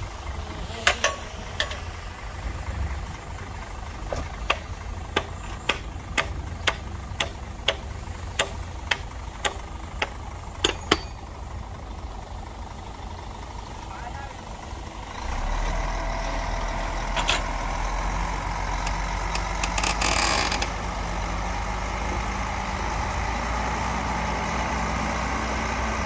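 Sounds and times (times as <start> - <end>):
heavy machine engine rumbling: 0.0 - 26.0
sharp knocks: 4.1 - 11.2.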